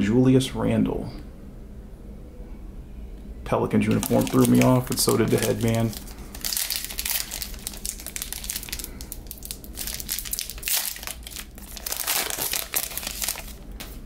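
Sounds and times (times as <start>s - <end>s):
foil wrapper crinkling: 3.8s - 14.0s.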